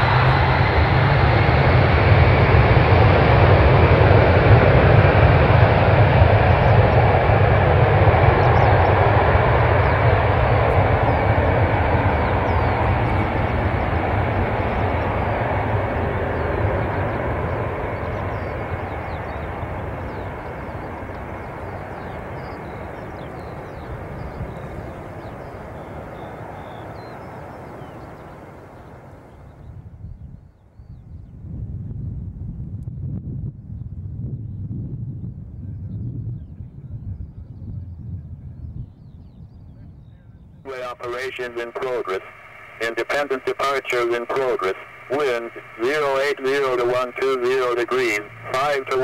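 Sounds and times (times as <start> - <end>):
jet engines at takeoff power: 0.0 - 30.1, 40.7 - 49.0.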